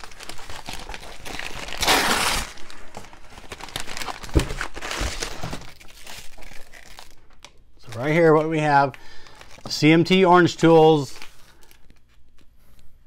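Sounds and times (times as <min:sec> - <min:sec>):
paper packaging rustling: 0:00.0 - 0:12.8.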